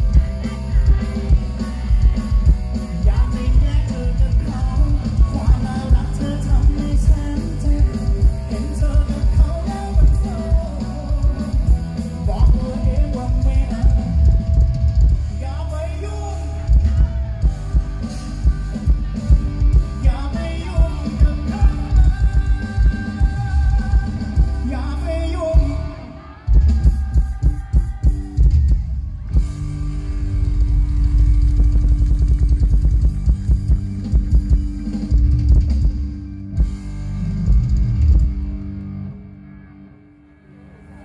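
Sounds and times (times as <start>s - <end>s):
man singing: 0.0s - 29.0s
drums: 0.0s - 39.6s
live rock band playing: 0.0s - 41.0s.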